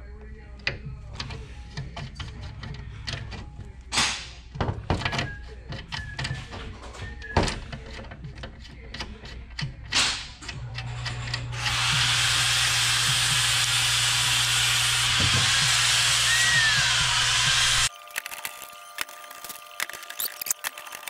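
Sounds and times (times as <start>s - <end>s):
rivet-nut setter clicks and clunks: 4.6s - 11.7s.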